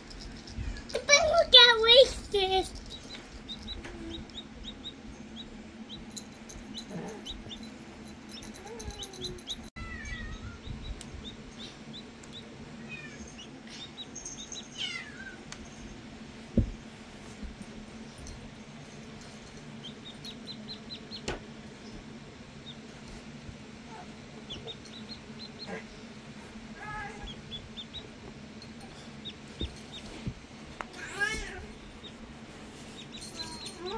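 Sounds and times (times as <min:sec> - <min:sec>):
steady low hum: 0:00.0 - 0:33.9
chick peeping: 0:02.9 - 0:06.1, 0:27.2 - 0:28.1.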